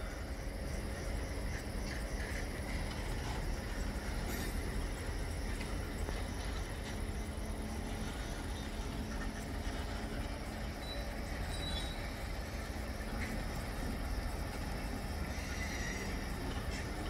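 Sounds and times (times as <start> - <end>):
distant diesel locomotive rumble: 0.0 - 17.0
steady hum: 0.0 - 17.0.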